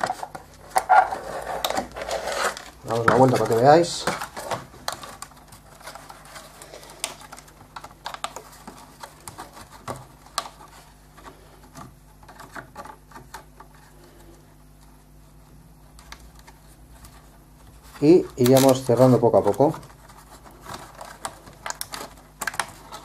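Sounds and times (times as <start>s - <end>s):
plastic zip tie clicks and rustles: 20.7s - 23.0s.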